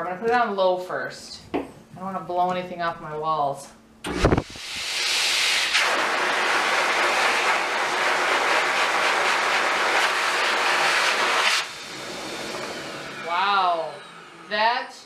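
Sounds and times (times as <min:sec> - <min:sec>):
grooming dryer blowing air: 0:04.1 - 0:14.9.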